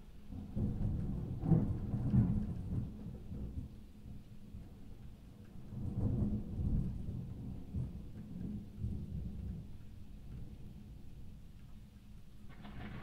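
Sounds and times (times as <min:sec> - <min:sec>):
thunder rumble: 0:00.3 - 0:04.8, 0:05.6 - 0:11.2, 0:12.5 - 0:13.0.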